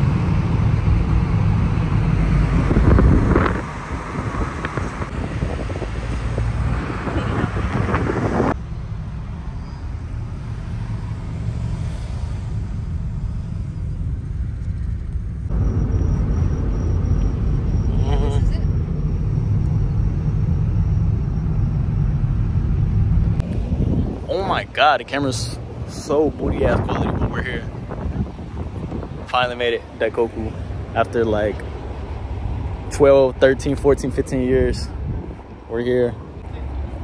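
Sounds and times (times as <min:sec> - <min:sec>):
car cabin road rumble: 0:00.0 - 0:37.0.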